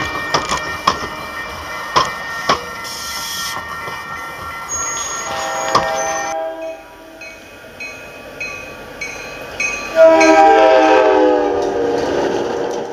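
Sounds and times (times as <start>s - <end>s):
bell dinging: 0.0s - 10.4s
diesel train approaching: 0.0s - 12.9s
locomotive air horn blast: 5.3s - 7.3s, 9.9s - 12.5s.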